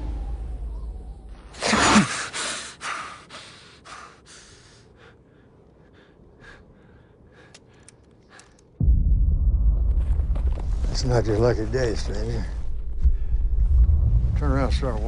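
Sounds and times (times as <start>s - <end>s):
man panting: 2.1s - 8.6s
faint ticks: 7.3s - 8.8s.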